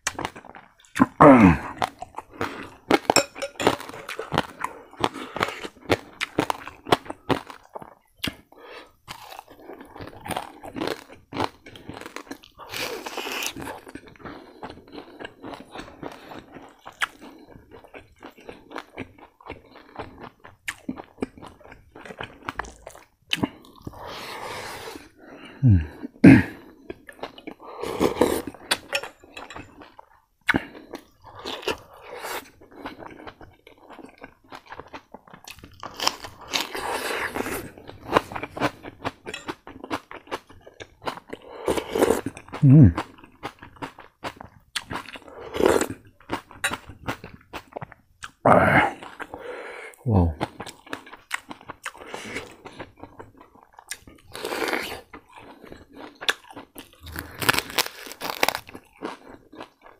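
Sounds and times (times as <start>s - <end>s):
crunchy chewing: 0.0s - 49.4s, 50.3s - 59.9s
wet mouth sounds: 56.2s - 58.6s.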